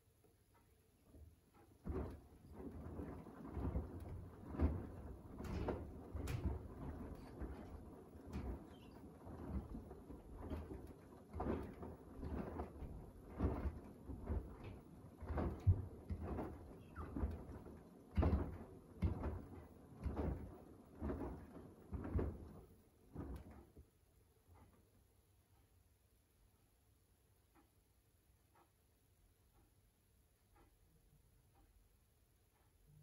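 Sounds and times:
washing machine drum turning: 1.6 - 23.6
wet laundry sloshing: 1.8 - 23.5.

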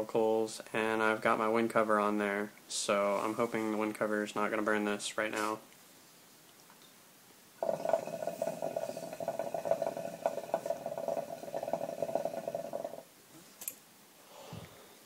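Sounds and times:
hookah bubbling: 7.6 - 13.1.

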